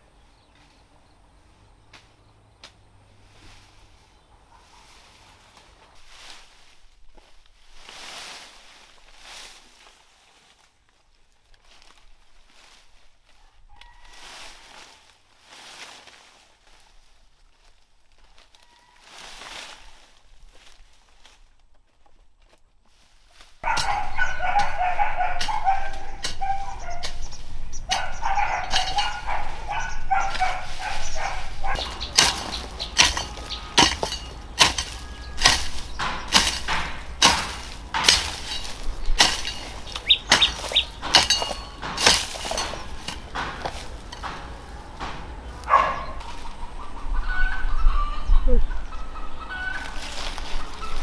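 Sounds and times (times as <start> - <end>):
chickens clucking: 3.2 - 6.0, 23.6 - 51.0
hoe chopping into soil: 23.6 - 27.3, 27.9 - 46.4.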